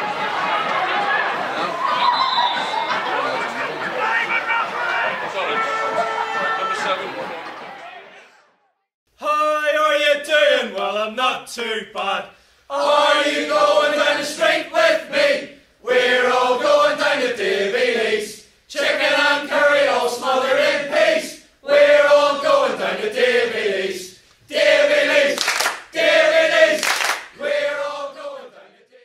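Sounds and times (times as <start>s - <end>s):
group of voices chanting: 12.7s - 29.0s.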